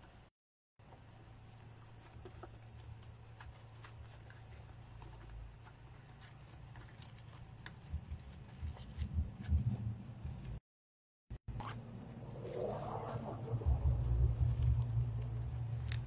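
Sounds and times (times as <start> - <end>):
rustling of craft materials: 0.0 - 10.6
low bumps: 12.0 - 15.9.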